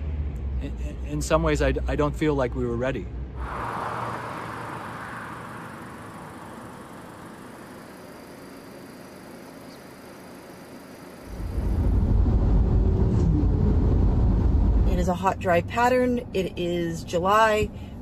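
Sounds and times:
faint outdoor noise: 0:00.4 - 0:12.1.

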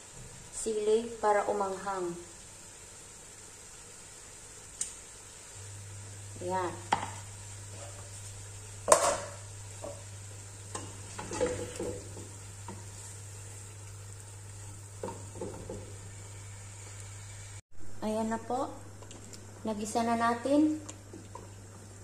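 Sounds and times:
sauce sizzling: 0:00.0 - 0:17.6, 0:18.8 - 0:22.0
wooden spoon stirring in a pot: 0:06.8 - 0:17.0.

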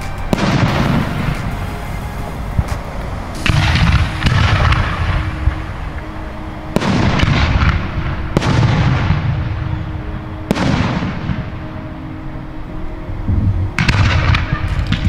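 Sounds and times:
fireworks booming: 0:00.0 - 0:11.8, 0:13.7 - 0:15.0
fireworks rumbling and crackling: 0:00.0 - 0:12.0, 0:13.3 - 0:15.0.

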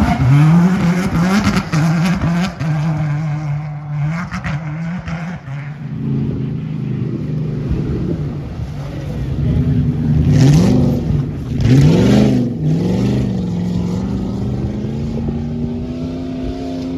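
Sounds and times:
rally car engine revving: 0:00.0 - 0:16.9
lower steady engine note: 0:05.6 - 0:16.9.

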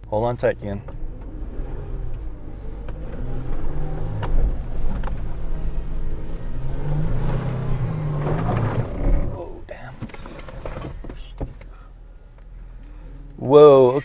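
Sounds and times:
truck engine revving under load: 0:00.6 - 0:12.0
truck bumping over ruts: 0:00.7 - 0:11.9.

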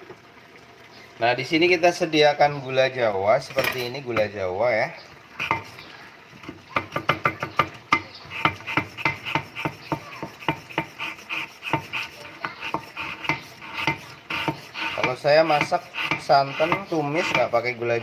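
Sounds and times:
knife chopping on wooden board: 0:06.7 - 0:11.0, 0:11.6 - 0:14.7, 0:15.6 - 0:17.4.

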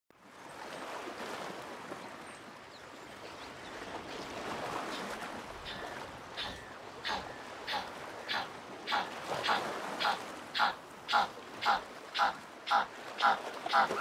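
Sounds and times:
penguin braying call: 0:05.7 - 0:14.0.

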